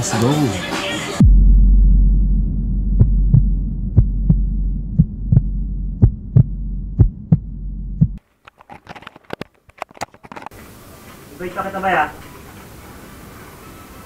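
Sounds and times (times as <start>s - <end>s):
heartbeat thumps: 1.2s - 8.2s
low droning hum: 1.2s - 8.2s.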